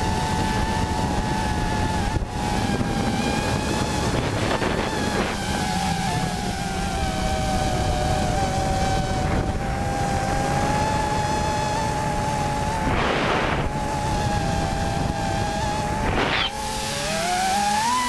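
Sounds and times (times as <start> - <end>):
drone propellers whining: 0.0 - 18.0
wind rumble on microphone: 0.0 - 18.0.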